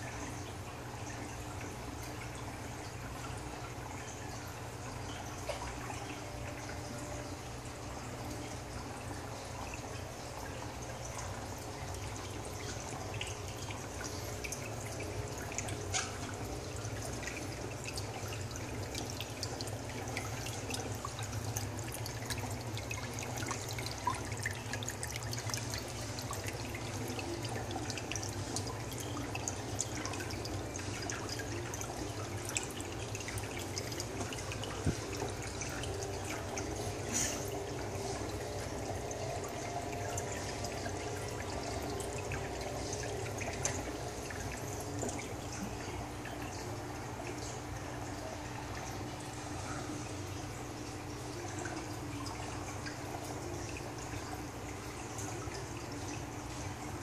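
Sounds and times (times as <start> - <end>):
water drips: 0.0 - 57.0
water trickling: 0.0 - 57.0.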